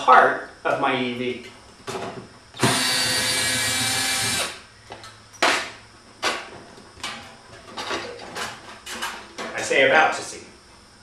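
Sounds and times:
cordless drill running: 2.6s - 4.6s.

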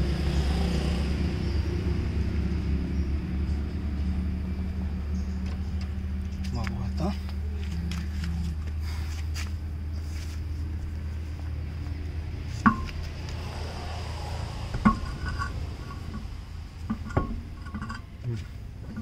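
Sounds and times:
steady low hum: 0.0s - 19.0s
steel wheel clanking on hub: 12.5s - 13.1s, 14.3s - 19.0s.

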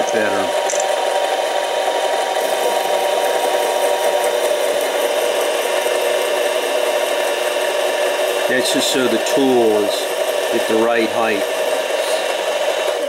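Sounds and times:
tool bit scraping metal: 0.0s - 1.0s, 8.2s - 12.4s
lathe running: 0.0s - 13.0s.

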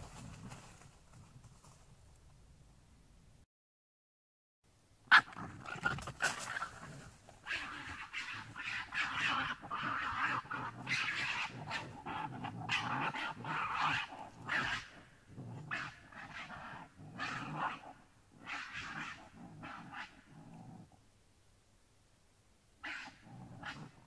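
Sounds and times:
harsh breathy animal grunts and calls: 5.1s - 21.0s.

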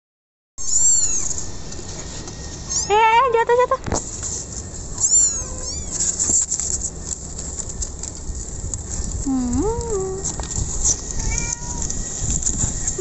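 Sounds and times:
kittens mewing: 0.6s - 1.4s, 5.0s - 6.6s, 11.1s - 12.0s.

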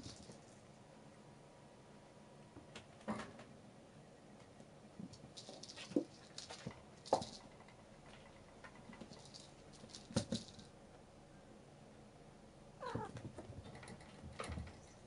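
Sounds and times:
cat meowing: 12.8s - 13.2s.

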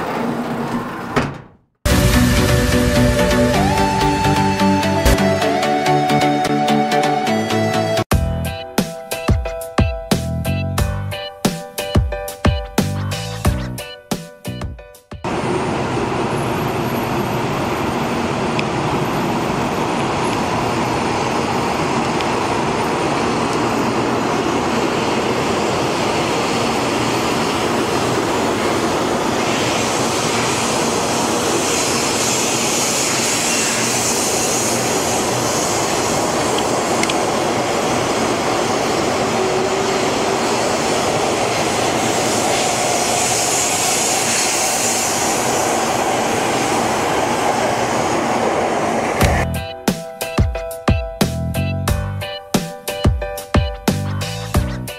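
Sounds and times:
high-speed train passing: 1.9s - 9.8s, 15.2s - 51.0s.

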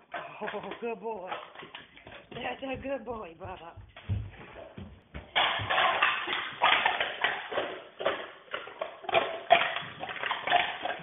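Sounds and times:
drink cans clattering in a bin: 5.2s - 11.0s.

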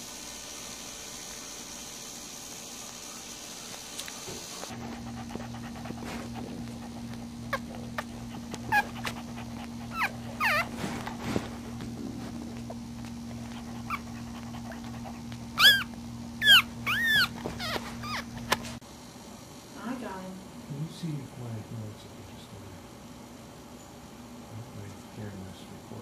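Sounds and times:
steady low hum: 0.0s - 26.0s
puppies squeaking and whimpering: 5.3s - 11.6s, 13.5s - 18.6s.

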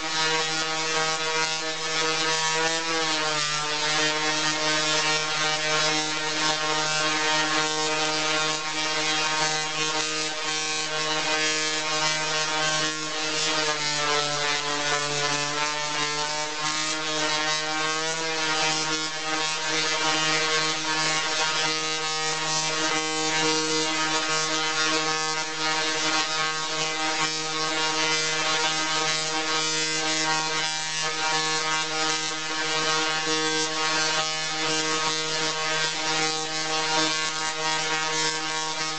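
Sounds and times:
tesla coil sparks buzzing: 0.0s - 38.9s.

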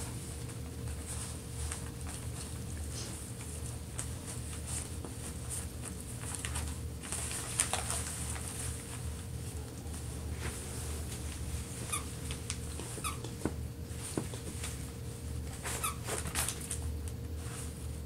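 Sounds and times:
wrapping paper crinkling: 3.3s - 14.8s, 15.5s - 17.0s.

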